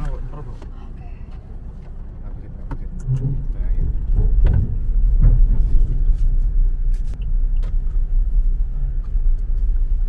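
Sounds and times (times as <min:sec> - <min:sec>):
car interior rumble: 0:00.0 - 0:10.0.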